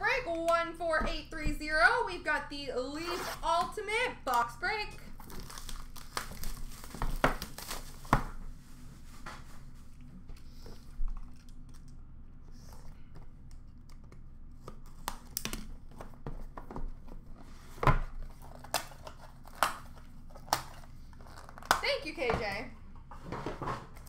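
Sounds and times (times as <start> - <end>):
shrink wrap crinkling and tearing: 5.1 - 8.4, 10.8 - 12.1, 18.2 - 22.0.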